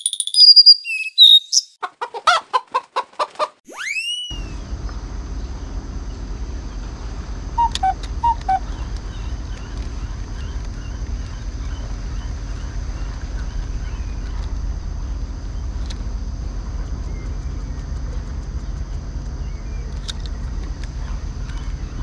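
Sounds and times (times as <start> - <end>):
small chirps: 0.0 - 1.8, 3.7 - 4.6, 7.6 - 11.4.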